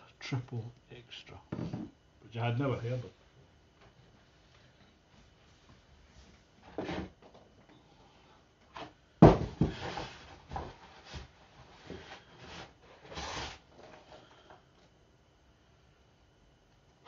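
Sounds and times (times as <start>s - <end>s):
cardboard scraping and rustling: 9.6s - 14.2s.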